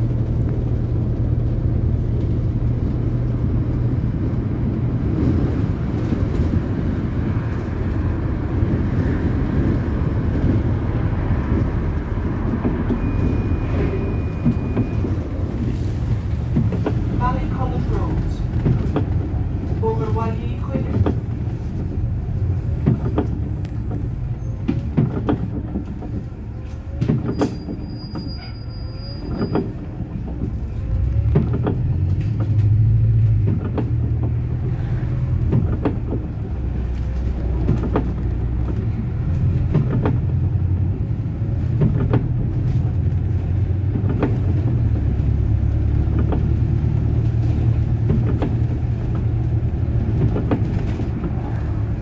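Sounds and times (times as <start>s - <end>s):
bus engine and road drone: 0.0s - 52.0s
short rattles and knocks: 14.3s - 19.8s, 20.7s - 28.3s, 29.2s - 34.4s, 35.3s - 40.8s, 41.6s - 51.9s.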